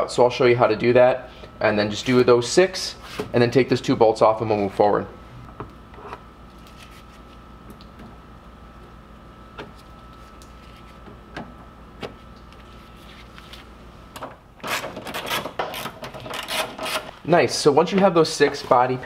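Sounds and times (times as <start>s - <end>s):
faint hum: 0.0s - 14.6s.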